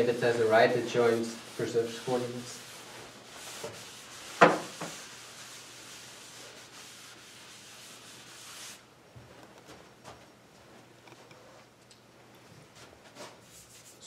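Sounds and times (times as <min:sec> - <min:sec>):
eraser scrubbing on blackboard: 0:00.0 - 0:08.8, 0:13.2 - 0:14.0.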